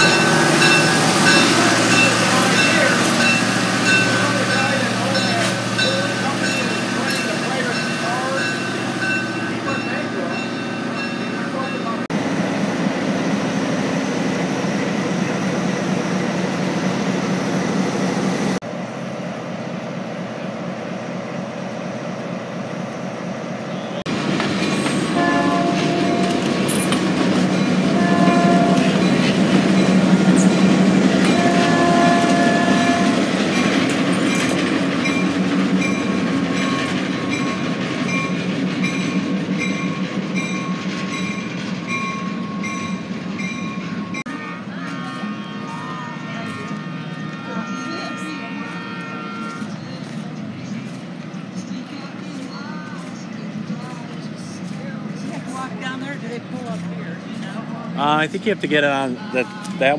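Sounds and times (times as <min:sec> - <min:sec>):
diesel locomotive running: 0:00.0 - 0:59.9
locomotive horn blasts: 0:25.1 - 0:26.6, 0:27.9 - 0:29.2, 0:31.1 - 0:33.7, 0:44.0 - 0:50.0.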